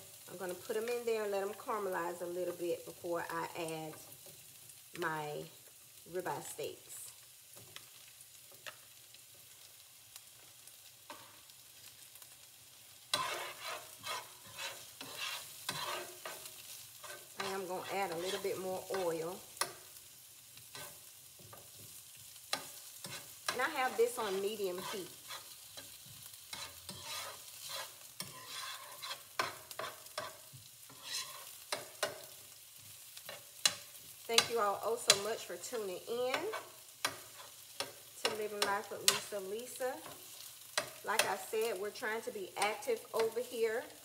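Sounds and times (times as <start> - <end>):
onions sizzling in frying pan: 0.0 - 44.0.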